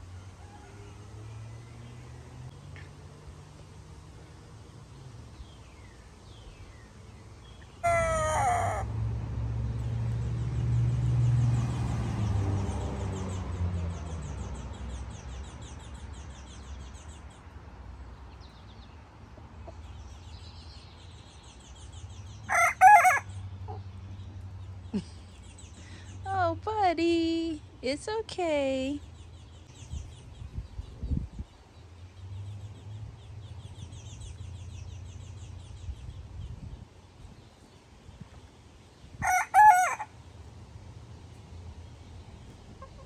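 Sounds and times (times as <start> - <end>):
chickens calling: 6.5 - 9.0, 19.2 - 20.3, 21.2 - 26.2, 31.6 - 40.7, 41.8 - 43.0.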